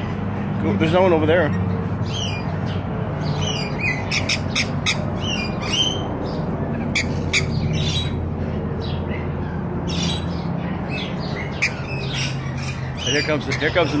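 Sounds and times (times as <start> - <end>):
lorikeets screeching: 0.0 - 14.0.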